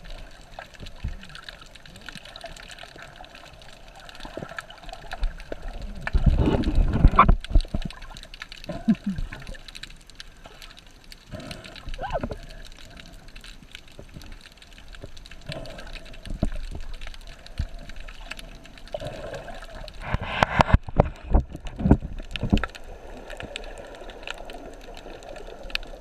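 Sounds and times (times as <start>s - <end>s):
muffled underwater wash: 0.0s - 26.0s
underwater clicks and crackles: 0.0s - 26.0s.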